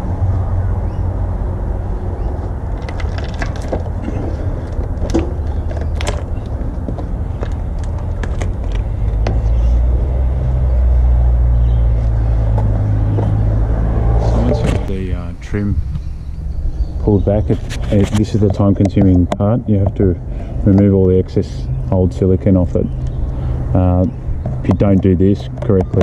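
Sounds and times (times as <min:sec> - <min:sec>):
low rumble: 0:00.0 - 0:20.4.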